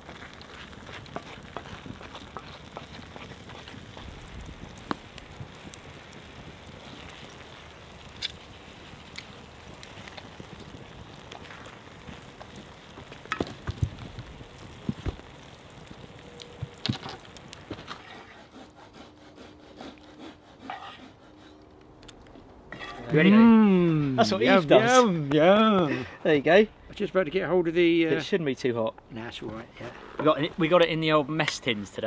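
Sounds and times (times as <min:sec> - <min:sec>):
stew sizzling in a skillet: 0:00.0 - 0:18.4
wooden spoon scraping a pan: 0:17.7 - 0:21.6, 0:22.7 - 0:23.2.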